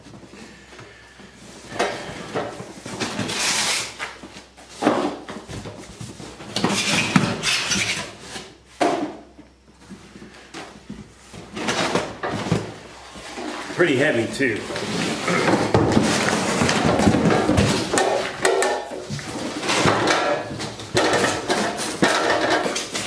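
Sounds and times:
cardboard box rustling and scraping: 14.7 - 18.0.

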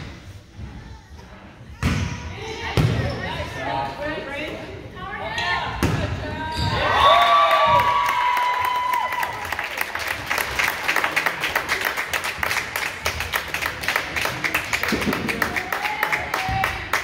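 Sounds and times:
cheering shout: 6.7 - 9.7
clapping and applause: 7.1 - 17.0.

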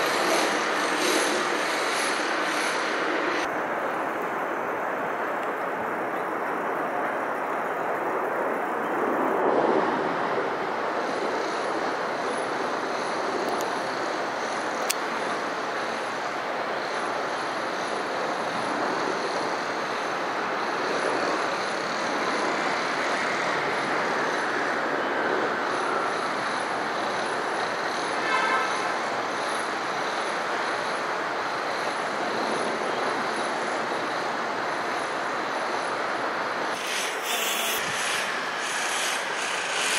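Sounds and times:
helicopter flying past: 0.0 - 4.8, 36.5 - 39.9.

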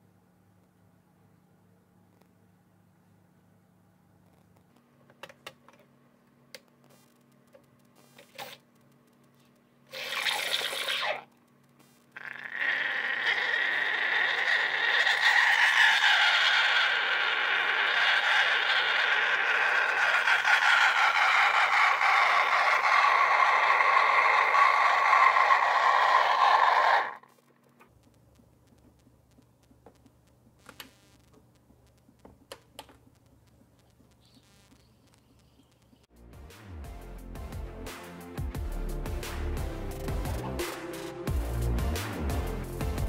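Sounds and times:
steam wand hissing: 13.4 - 27.2.

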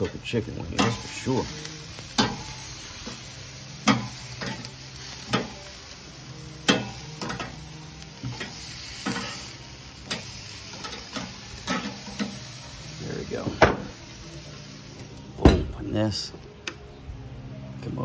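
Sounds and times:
metal tongs clicking on grill: 0.0 - 3.2, 3.8 - 5.6, 6.6 - 7.6, 8.2 - 12.5
chicken wings sizzling: 0.0 - 15.4.

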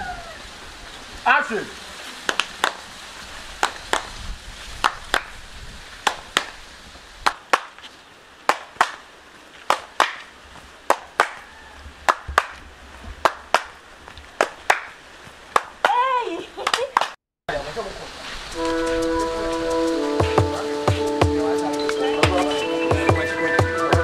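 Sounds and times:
hand claps in quick pairs: 2.3 - 2.8, 3.6 - 4.1, 4.8 - 5.3, 6.0 - 6.6, 7.2 - 7.8, 8.5 - 9.1, 9.7 - 10.3, 10.9 - 11.4, 12.1 - 12.6, 13.2 - 13.7, 14.4 - 14.9, 15.5 - 16.0.

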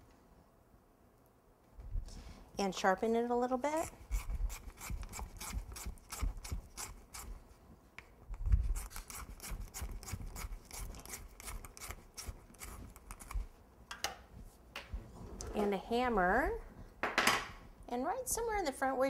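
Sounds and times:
knife scraping a skewer: 3.8 - 7.4, 8.7 - 13.4.

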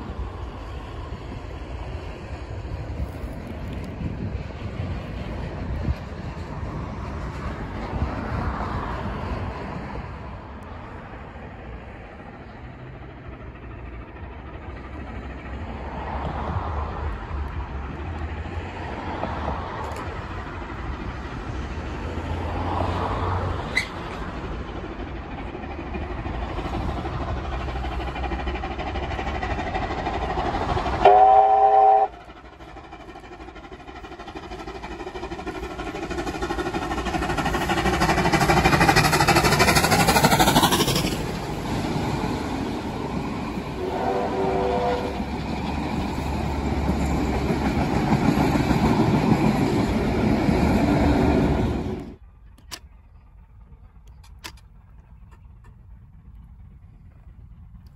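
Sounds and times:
train running noise: 0.0 - 57.9
steam locomotive chime whistle: 31.0 - 32.2, 43.8 - 45.2.

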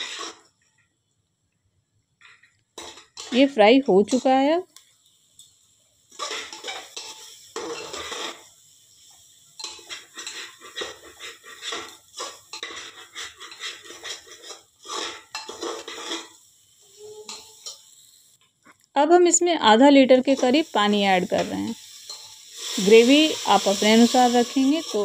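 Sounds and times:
spatula scraping a metal pot: 0.0 - 0.5, 6.1 - 8.4, 9.6 - 16.4, 23.9 - 25.0.

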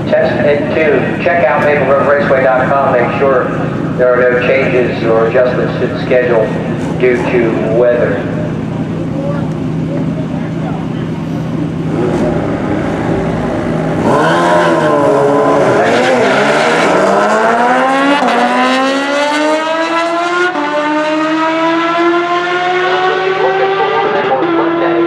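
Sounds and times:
car and motorcycle engines racing: 0.0 - 25.0
gear upshifts: 11.0 - 18.5.

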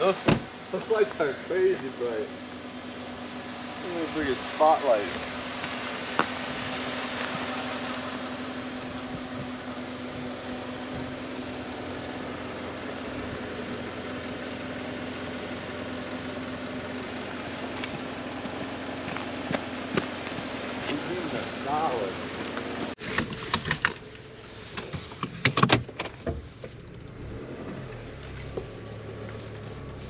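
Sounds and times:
truck engine idling: 0.0 - 23.0.

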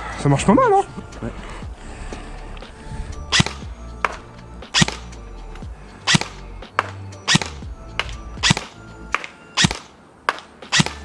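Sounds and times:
airsoft gun shots: 3.3 - 5.1, 6.1 - 11.0.

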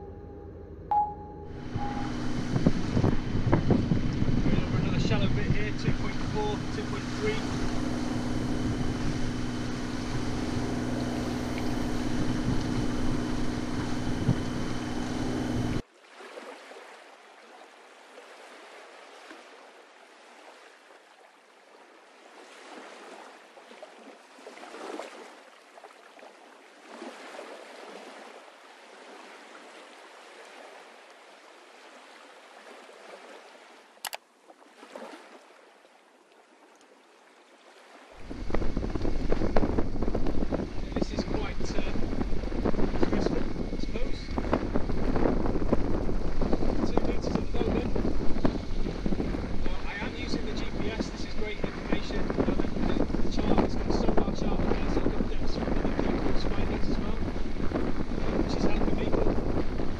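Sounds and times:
boat engine running: 0.0 - 15.8, 38.2 - 59.9
wind and water noise: 0.0 - 59.9.

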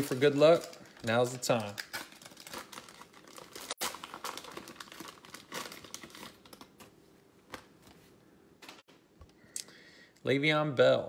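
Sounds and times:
plastic wrapper crinkling and tearing: 0.0 - 6.9.

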